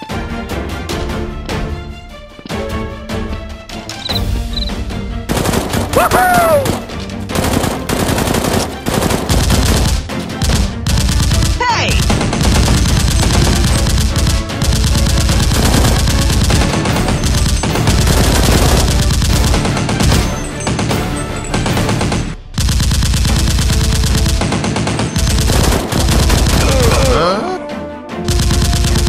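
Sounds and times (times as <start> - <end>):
background music: 0.0 - 29.0
rapid automatic gunfire: 5.3 - 27.1, 28.3 - 29.0.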